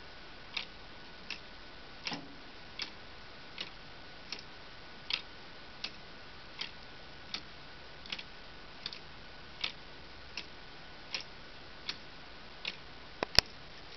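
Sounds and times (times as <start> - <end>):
plastic clock escapement ticking: 0.5 - 2.2, 2.8 - 3.0, 3.6 - 4.5, 5.1 - 6.0, 6.6 - 13.4.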